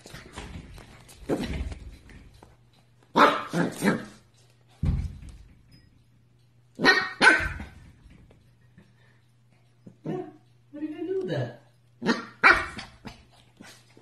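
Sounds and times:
puppy barking: 0:03.1 - 0:04.2, 0:06.8 - 0:07.8, 0:12.0 - 0:13.0
low thump: 0:04.8 - 0:05.6.

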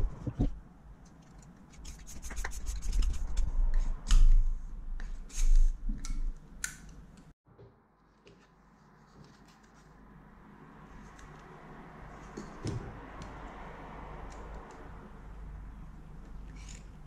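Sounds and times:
metal parts rubbing and scraping: 0:01.1 - 0:03.7.

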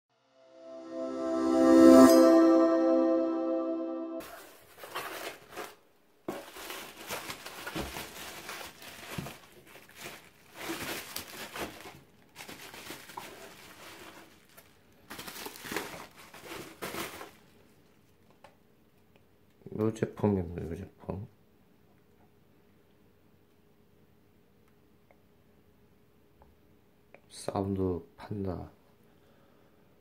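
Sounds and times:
chiming intro jingle: 0:00.4 - 0:04.2
bubble wrap crinkling: 0:04.2 - 0:18.2.

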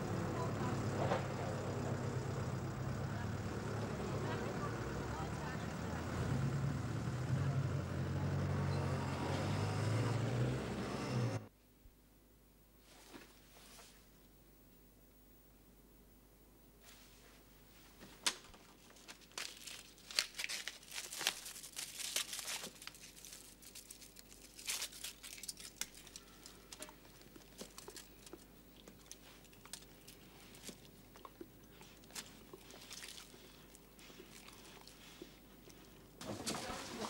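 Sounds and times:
crinkling and tearing in hands: 0:18.6 - 0:35.9.

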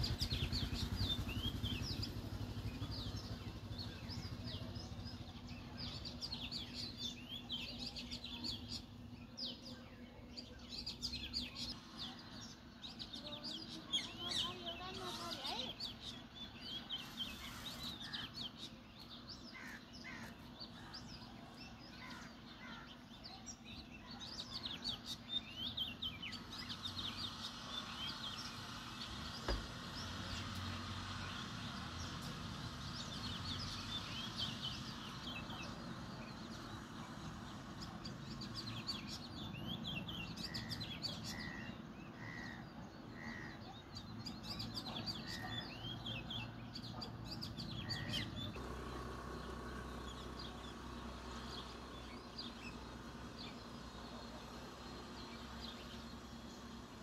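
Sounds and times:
sparrows chirping: 0:00.0 - 0:57.0.

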